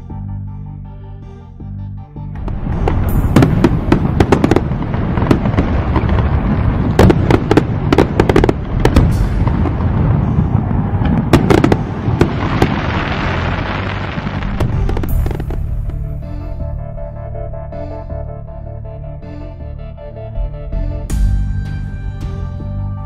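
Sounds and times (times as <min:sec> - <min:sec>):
fireworks bangs and crackling: 0:02.4 - 0:16.1.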